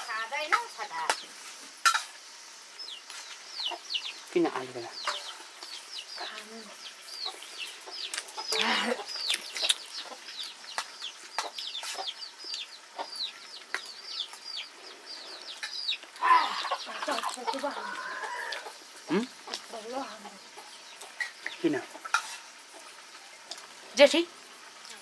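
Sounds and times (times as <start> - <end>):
chicks peeping: 2.8 - 23.7
chick drawn-out call: 15.1 - 20.8.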